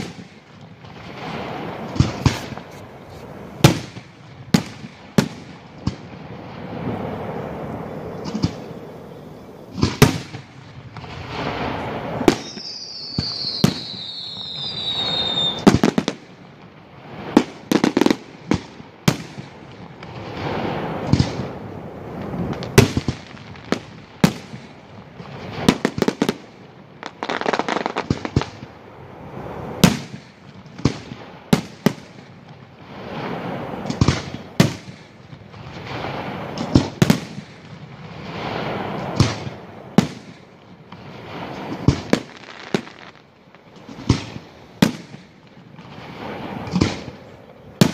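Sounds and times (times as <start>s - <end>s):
fireworks crackling: 0.0s - 47.9s
fireworks shells bursting: 1.2s - 4.0s, 9.7s - 16.2s
falling firework whistle: 6.6s - 16.2s.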